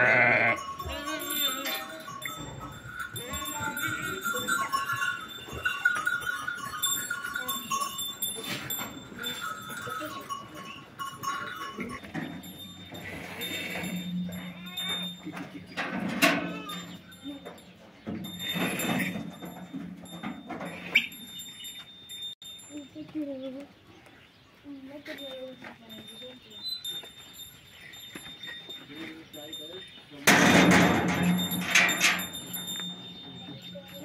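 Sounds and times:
sheep bleating: 0.0 - 1.4.

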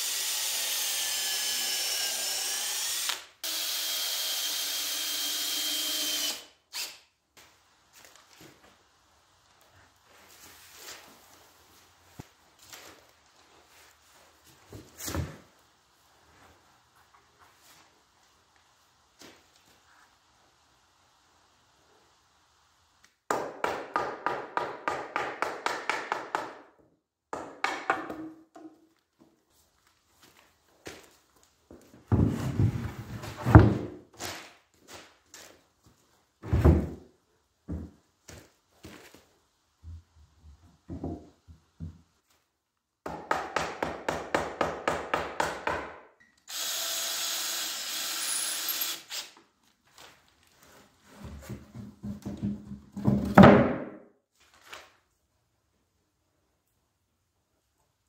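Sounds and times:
power tool running: 46.5 - 49.3.

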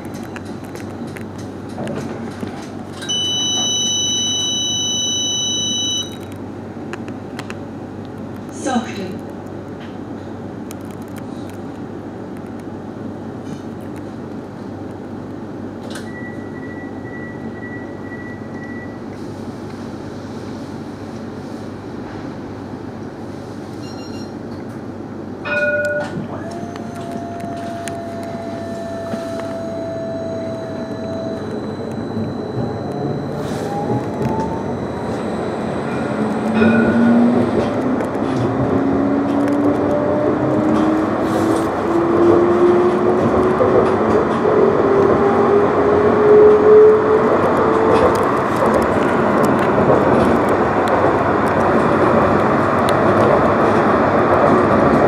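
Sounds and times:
low hum of tram: 0.0 - 55.0
electronic beep: 3.0 - 6.2, 23.8 - 24.4, 28.9 - 36.2.

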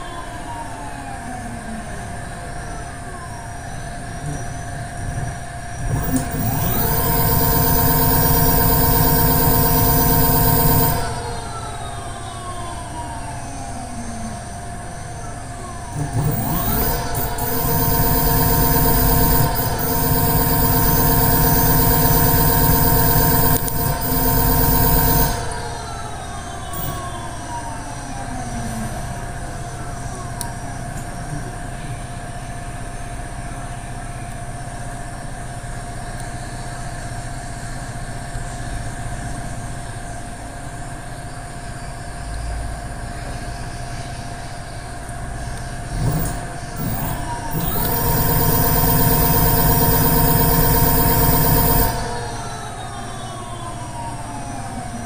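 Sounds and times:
electric hub motor whining: 5.8 - 12.1, 15.9 - 26.2, 26.8 - 27.2, 46.0 - 54.0.

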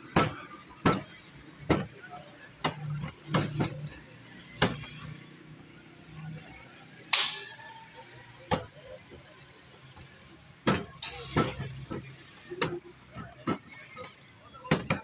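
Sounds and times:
utensils clattering on steel: 7.2 - 7.7, 11.0 - 11.6.

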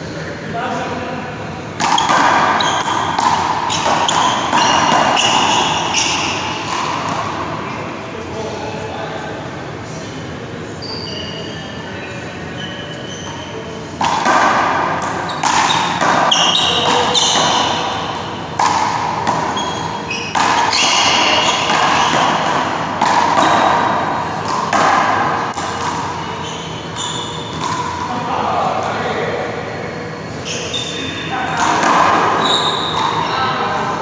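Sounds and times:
ball hitting wall: 1.8 - 7.3
sneaker squeaks on court floor: 1.8 - 7.3, 10.8 - 13.8, 15.1 - 22.8, 25.5 - 28.1, 30.4 - 33.6.

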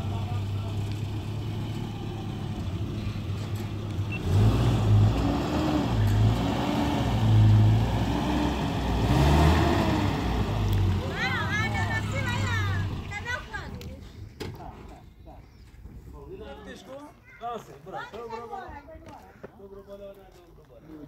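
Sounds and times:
vehicle engine revving: 0.0 - 13.3.

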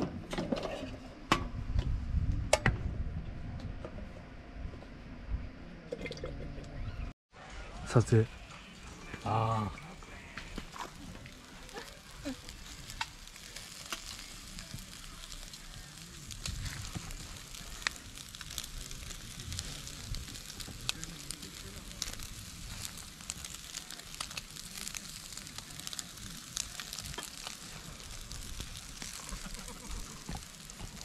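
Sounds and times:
skewers sizzling over charcoal: 7.4 - 31.0.

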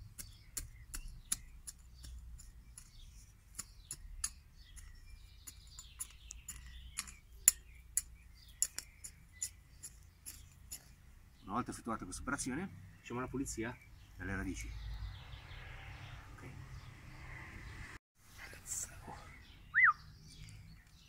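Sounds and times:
hand hoe chopping into dry soil: 0.0 - 11.0.

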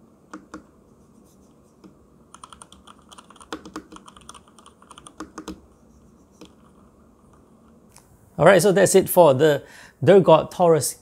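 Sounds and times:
mechanical keyboard keystrokes: 2.3 - 5.6.

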